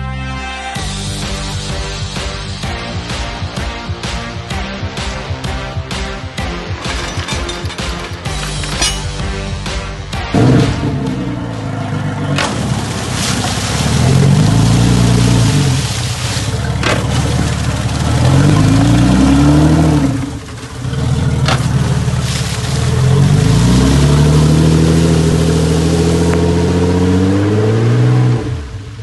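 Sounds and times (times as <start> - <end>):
propeller churning water: 1.0 - 29.0
outboard motor revving: 8.2 - 29.0.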